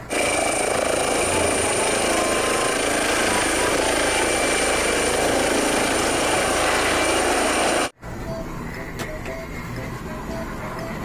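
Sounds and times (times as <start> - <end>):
toy helicopter rotor noise: 0.0 - 8.0.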